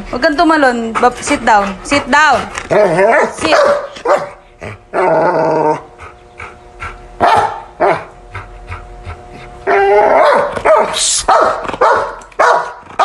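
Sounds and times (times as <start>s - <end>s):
dog whining: 2.7s - 12.0s
dog barking: 3.1s - 4.4s, 7.2s - 8.1s, 10.2s - 13.0s.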